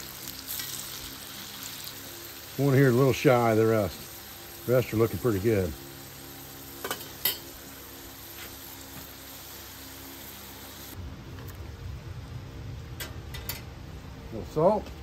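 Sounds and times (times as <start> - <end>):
frying sizzle in skillet: 0.0 - 11.7
low rumble: 11.0 - 15.0.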